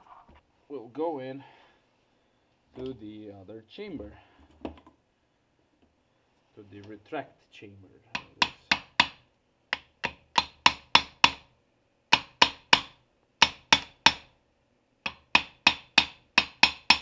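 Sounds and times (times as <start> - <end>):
hammer tapping on metal: 8.2 - 11.5, 12.1 - 14.3, 15.0 - 17.0.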